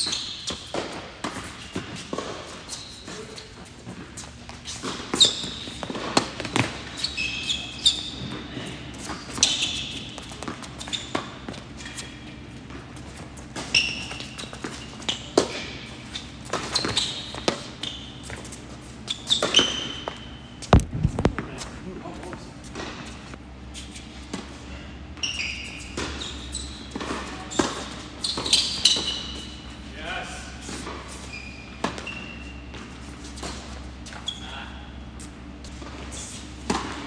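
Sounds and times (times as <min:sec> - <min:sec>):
rackets hitting tennis ball: 0:00.0 - 0:23.3
sneakers squeaking on court: 0:00.0 - 0:29.9, 0:30.6 - 0:37.0.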